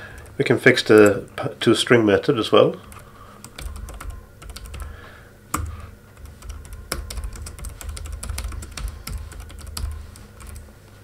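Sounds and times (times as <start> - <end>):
typing on a keyboard: 2.8 - 4.9, 5.6 - 10.7.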